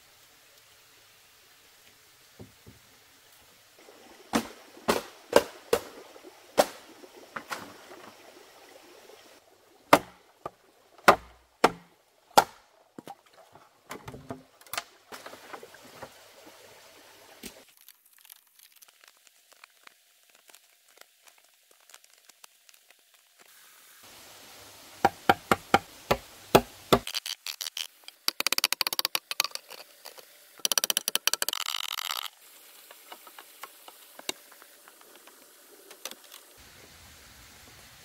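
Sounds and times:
blade chopping bamboo: 4.3 - 6.0, 9.9 - 10.2, 11.0 - 12.6, 25.0 - 27.2.

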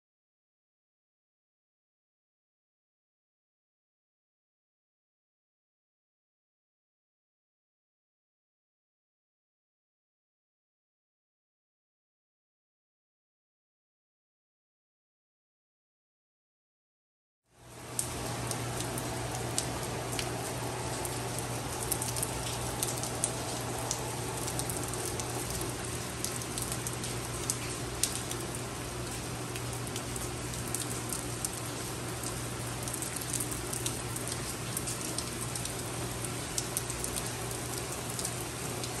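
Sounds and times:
low steady hum: 17.6 - 39.0
rain on pool and stone patio: 17.6 - 39.0.

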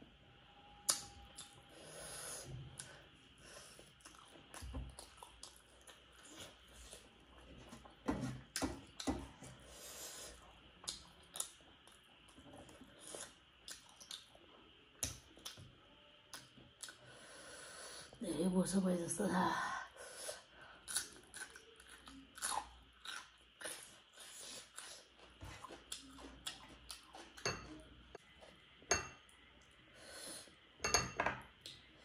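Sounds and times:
person chewing and eating: 3.8 - 15.6, 20.8 - 29.8.

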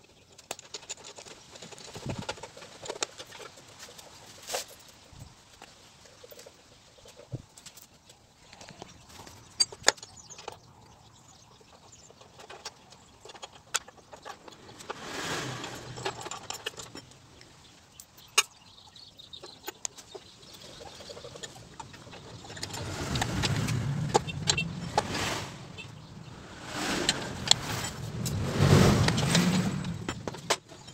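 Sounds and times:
sharp metal clicks and knocks: 11.8 - 15.0, 15.6 - 18.7
low rumble: 22.2 - 30.4.

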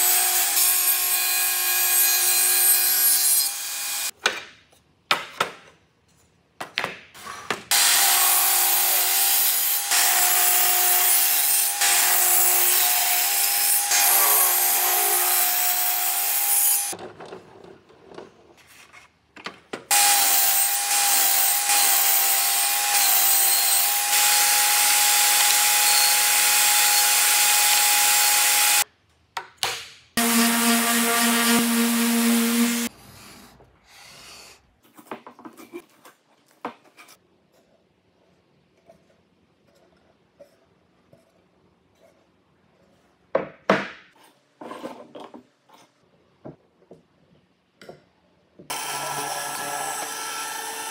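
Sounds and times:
table saw cutting wood: 0.0 - 4.1, 7.7 - 17.0, 19.9 - 28.8, 30.2 - 32.9, 48.7 - 50.9
lower-pitched power tool: 30.2 - 32.9, 48.7 - 50.9.

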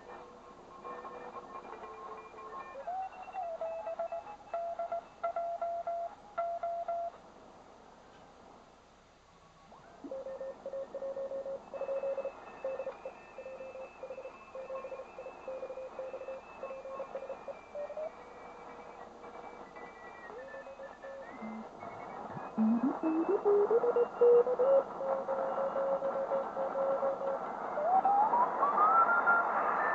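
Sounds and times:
radio band hiss: 0.0 - 4.7, 9.4 - 29.9
morse code beep tones: 20.4 - 27.3.

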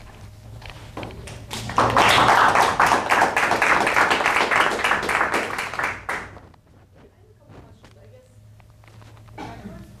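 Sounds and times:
audience applauding: 1.5 - 6.4.

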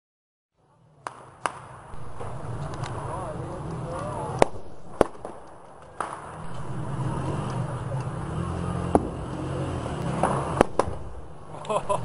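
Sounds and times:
steady street rumble: 0.6 - 12.0
loud sharp explosion cracks: 4.3 - 6.8, 10.2 - 11.4
weak explosion pop: 10.2 - 11.3.

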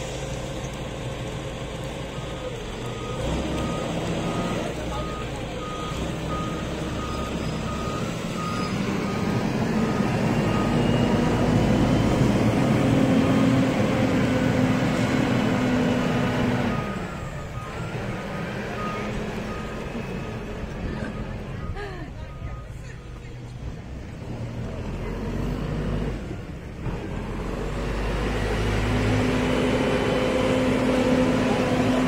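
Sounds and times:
forklift engine running: 0.0 - 32.0
reversing alarm beeping: 2.8 - 13.6, 16.2 - 23.2.

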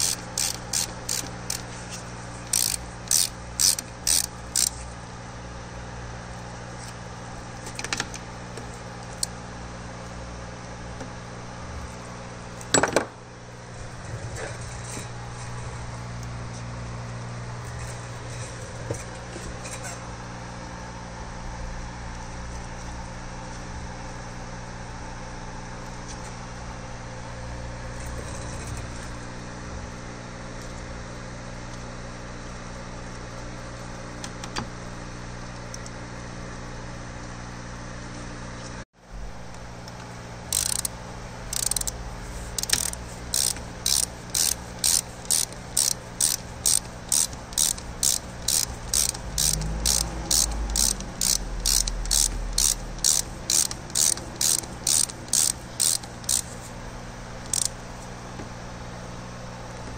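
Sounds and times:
socket ratchet clicking: 0.0 - 1.7, 2.4 - 4.8, 40.5 - 56.6, 57.4 - 57.8
steady low hum: 0.0 - 30.9, 39.0 - 59.9.

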